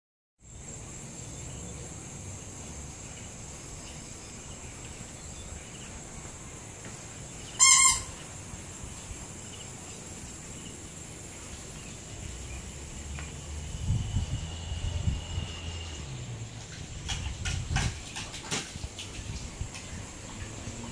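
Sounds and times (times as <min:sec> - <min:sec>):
loud bird call: 0:07.5 - 0:08.4
low rumbling: 0:12.2 - 0:18.0.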